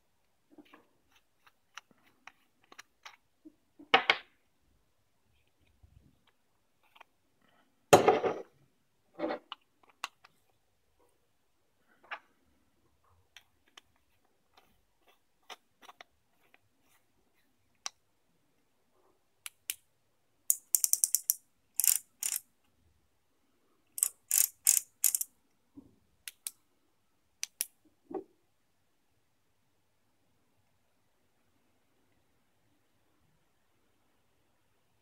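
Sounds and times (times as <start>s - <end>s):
small metal clicks: 20.5s - 22.4s, 24.0s - 25.3s
rapid ratchet-like clicking: 20.7s - 22.4s, 24.0s - 25.3s.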